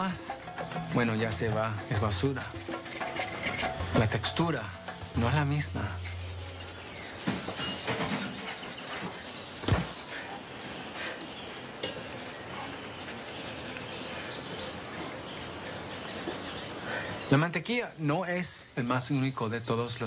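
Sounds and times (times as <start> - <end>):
kitchen utensils clinking: 11.8 - 12.2.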